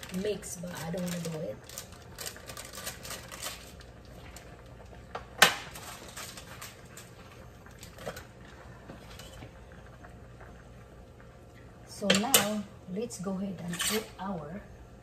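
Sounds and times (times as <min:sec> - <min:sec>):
paper packet crinkling: 0:00.0 - 0:04.9, 0:05.7 - 0:08.2.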